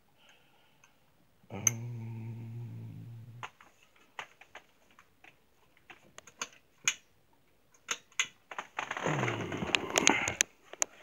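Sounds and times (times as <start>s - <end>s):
small irregular clicks and taps: 3.4s - 9.0s, 9.6s - 11.0s.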